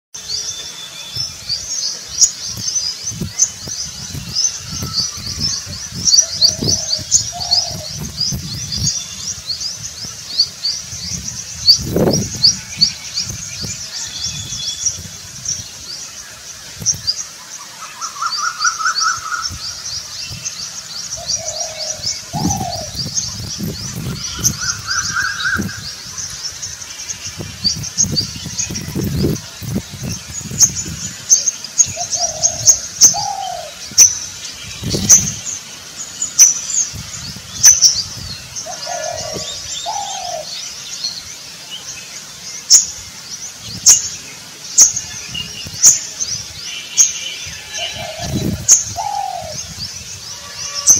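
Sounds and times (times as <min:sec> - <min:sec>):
small birds chirping: 0:00.2 - 0:50.9
dove cooing: 0:06.3 - 0:08.1, 0:21.2 - 0:23.0, 0:31.9 - 0:33.8, 0:38.6 - 0:40.5, 0:47.7 - 0:49.6.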